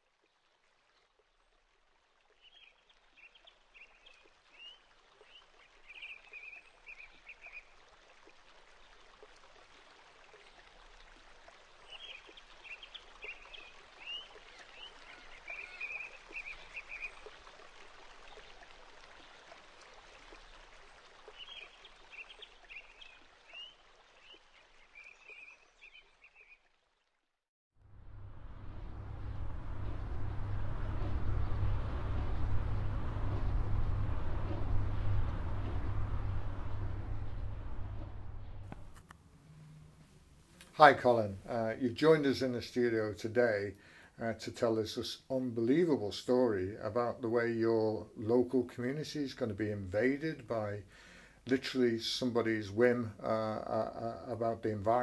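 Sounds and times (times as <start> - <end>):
running water: 0.0 - 55.0
songbird singing: 2.3 - 7.7, 11.8 - 17.4, 21.2 - 26.7, 28.2 - 41.7.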